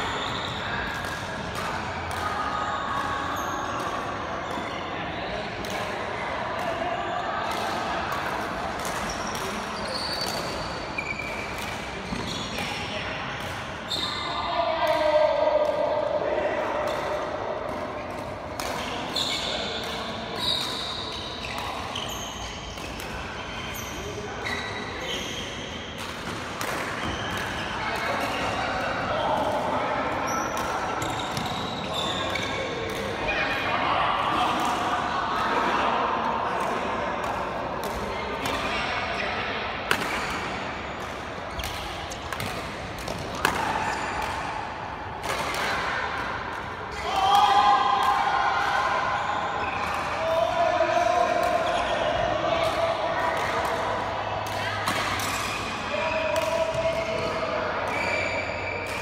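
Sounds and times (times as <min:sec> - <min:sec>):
shoe squeaks: 0:00.0 - 0:00.8, 0:03.3 - 0:03.8, 0:09.1 - 0:12.7, 0:13.9 - 0:14.4, 0:19.1 - 0:19.7, 0:20.4 - 0:25.7, 0:30.3 - 0:32.6, 0:57.9 - 0:58.9
rackets striking shuttlecock: 0:39.8 - 0:46.7.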